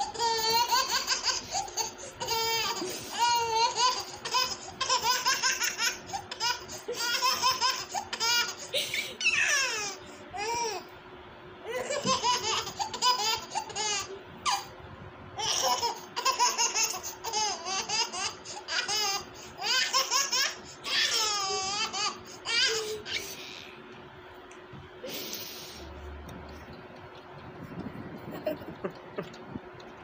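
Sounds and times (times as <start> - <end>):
baby laughing: 0.0 - 10.9, 11.7 - 14.7, 15.4 - 23.8.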